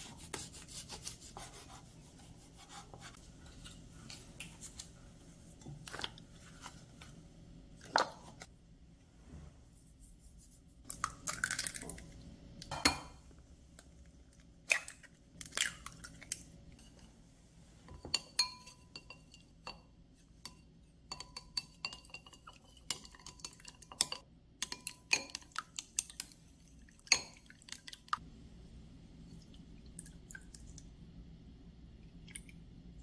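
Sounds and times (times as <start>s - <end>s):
chopsticks clinking against glass bowl: 20.5s - 26.2s.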